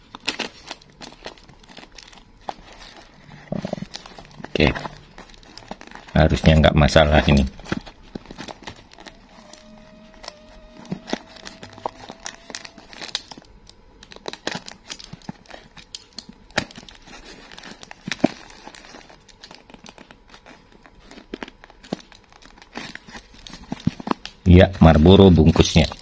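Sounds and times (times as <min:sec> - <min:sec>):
plastic mailer bag tearing: 0:00.0 - 0:26.0.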